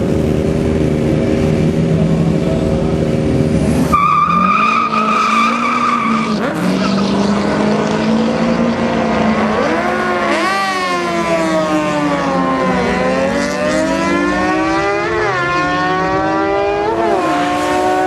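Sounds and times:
engines idling: 0.0 - 18.0
engines revving hard: 0.0 - 18.0.

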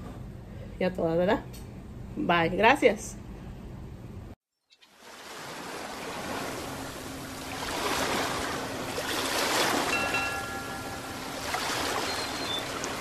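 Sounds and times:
ocean surf washing on beach: 5.0 - 13.0.

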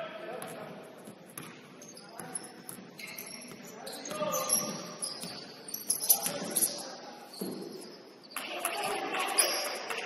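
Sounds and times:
basketball bouncing: 0.4 - 5.5
shoe squeaks: 1.1 - 8.5, 9.2 - 9.8.

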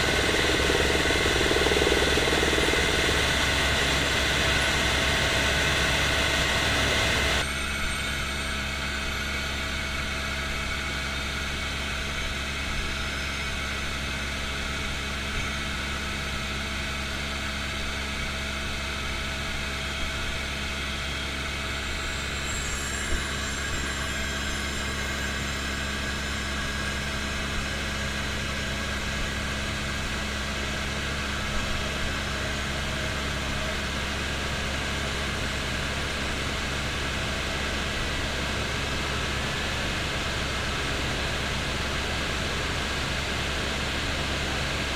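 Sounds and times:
helicopter cabin drone: 0.0 - 44.9.

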